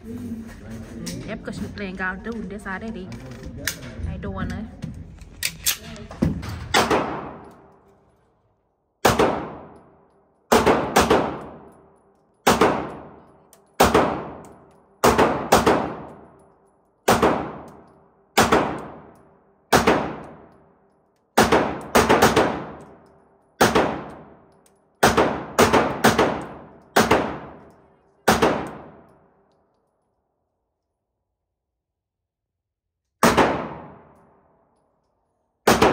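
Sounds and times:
pistol shots echoing indoors: 0:05.5 - 0:31.0, 0:33.0 - 0:35.9.

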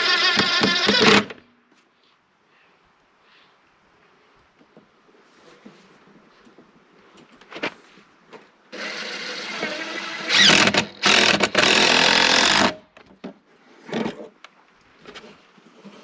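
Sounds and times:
cordless drill whining: 0:08.8 - 0:12.8.

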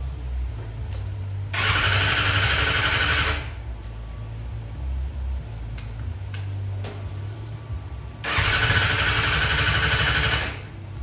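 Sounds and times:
motorcycle engine cranking on starter: 0:01.6 - 0:03.5, 0:08.2 - 0:10.7.

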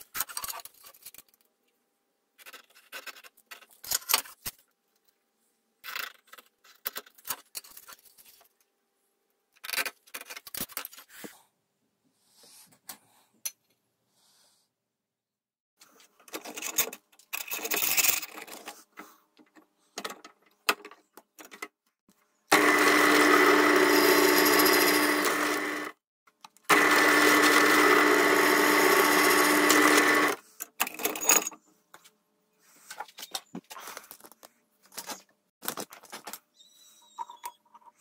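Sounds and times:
drill press drilling metal: 0:22.5 - 0:26.0, 0:26.7 - 0:30.4.

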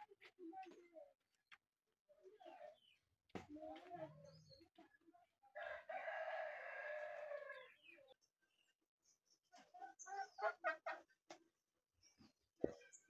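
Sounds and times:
faint rooster crowing: 0:05.6 - 0:07.9.

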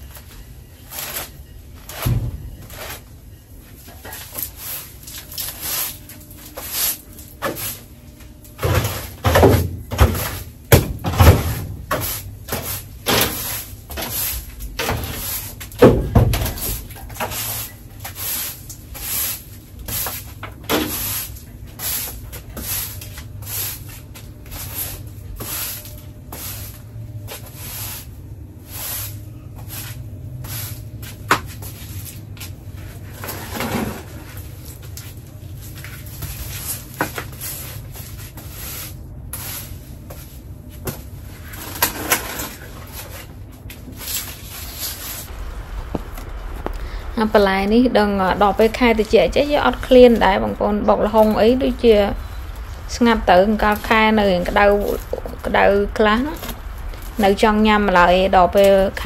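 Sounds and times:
broom sweeping brick floor: 0:00.0 - 0:59.0.

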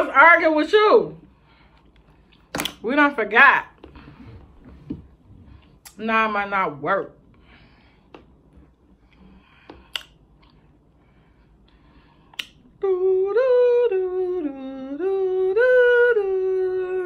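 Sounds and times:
person humming: 0:12.8 - 0:17.0.

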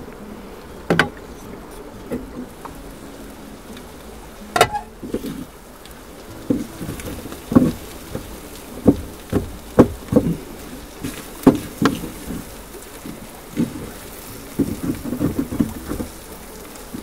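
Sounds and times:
frying hiss: 0:00.0 - 0:17.0.

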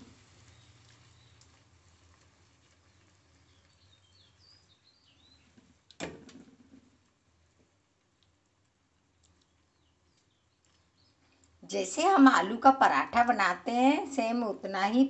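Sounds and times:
faint bird chirps: 0:03.4 - 0:05.5.

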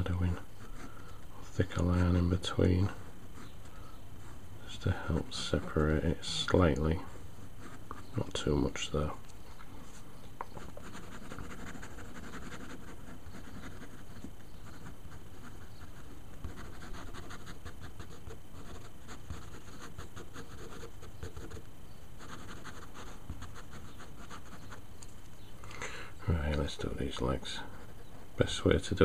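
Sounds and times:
pen scratching on paper: 0:10.6 - 0:21.6, 0:22.2 - 0:24.8.

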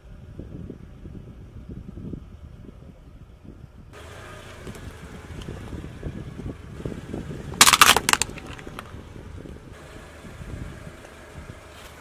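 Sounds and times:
car tyre rolling over asphalt: 0:03.6 - 0:12.0
plastic cone cracking: 0:07.6 - 0:08.9.

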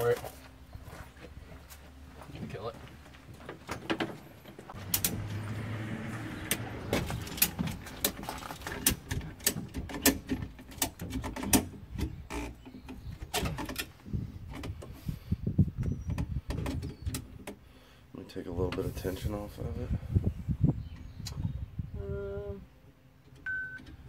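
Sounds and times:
sharp clicks and knocks: 0:03.5 - 0:05.4, 0:06.4 - 0:14.9.

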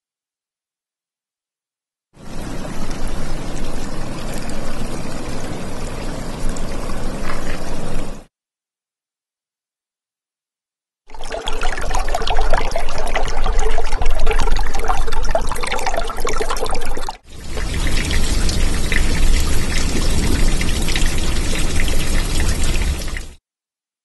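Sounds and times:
water pouring and trickling: 0:02.2 - 0:08.3, 0:11.1 - 0:23.4.

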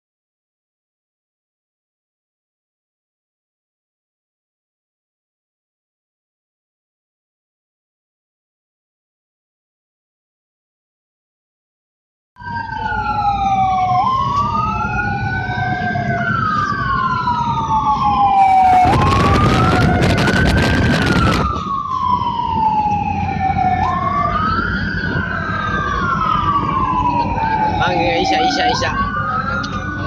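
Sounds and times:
ambulance sirens wailing: 0:12.4 - 0:30.0
low rumble of moving vehicle: 0:12.4 - 0:30.0
loud rushing noise: 0:18.2 - 0:21.8.

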